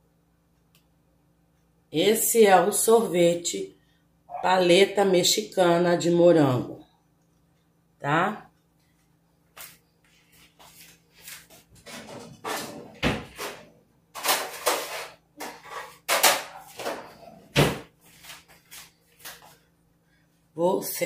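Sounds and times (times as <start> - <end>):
kitchen knocks and clatters: 11.7 - 18.0.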